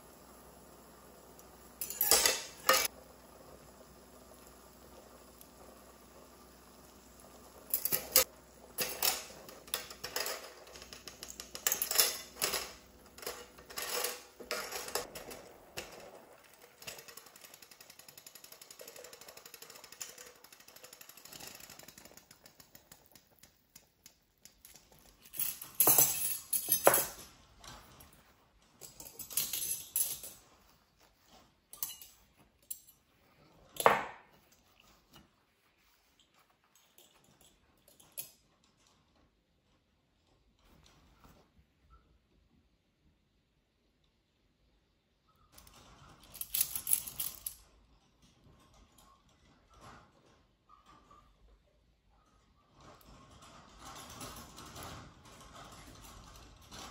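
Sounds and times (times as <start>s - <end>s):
cutlery clinking against pot: 1.8s - 2.9s.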